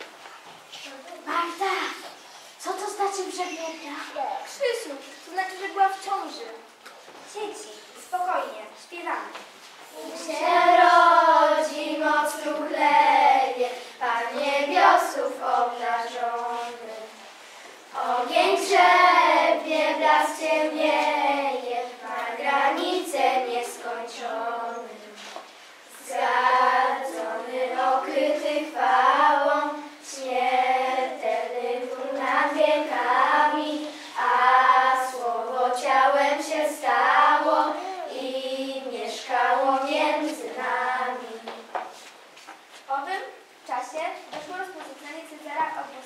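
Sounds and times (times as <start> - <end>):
children singing together: 9.9 - 17.2, 17.9 - 41.7.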